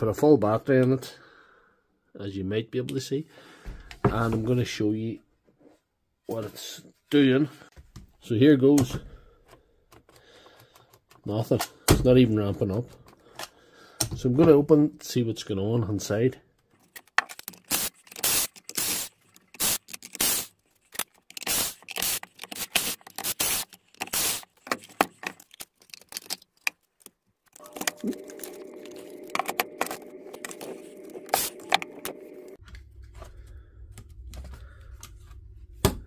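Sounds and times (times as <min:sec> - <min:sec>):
tools clicking and scraping on housing: 0:16.6 - 0:28.6
steady hum: 0:27.6 - 0:34.5.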